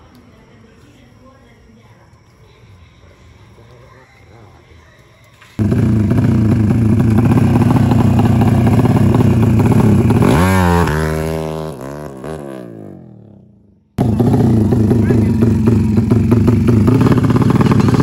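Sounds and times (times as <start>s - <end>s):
motorcycle engine revving: 5.6s - 18.0s.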